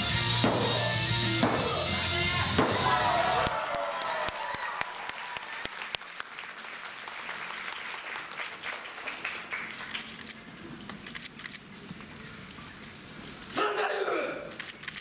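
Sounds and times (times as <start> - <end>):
audience clapping: 2.8 - 10.1
sharp clicks: 14.5 - 15.0.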